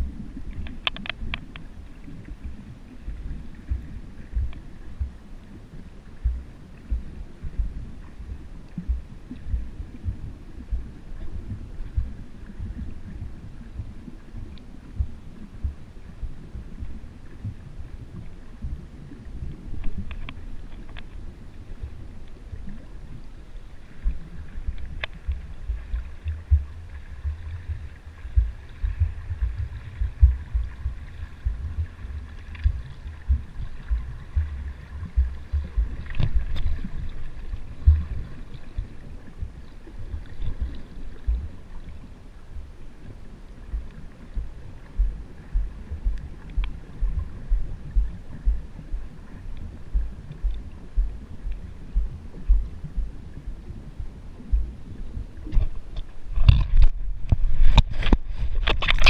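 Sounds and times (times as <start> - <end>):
faint sharp clicks: 0.4 - 2.6, 19.7 - 21.2, 24.0 - 27.5, 46.1 - 47.2
water thumping against camera housing: 0.6 - 1.7, 32.5 - 36.8, 55.5 - 59.0.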